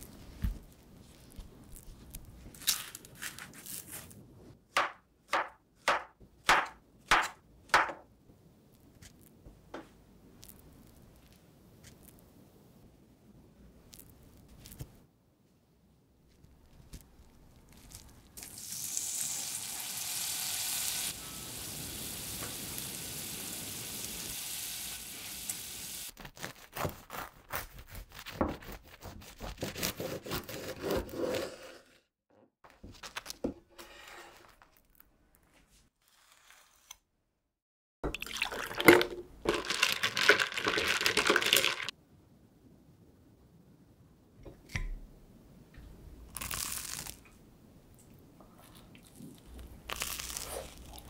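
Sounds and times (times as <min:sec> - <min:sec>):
steady hiss: 0:18.4 - 0:26.1
knife sawing through toasted bread: 0:26.1 - 0:32.0
ice cubes clinking in glass: 0:38.1 - 0:41.9.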